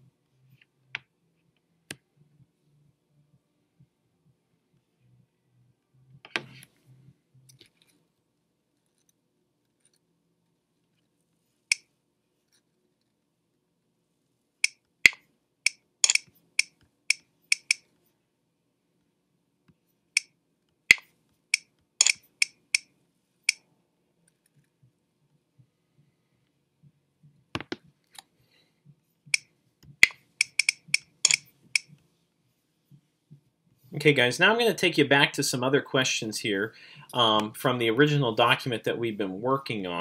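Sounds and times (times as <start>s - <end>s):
computer mouse clicking: 14.6s - 17.8s, 20.9s - 22.9s, 29.3s - 31.9s.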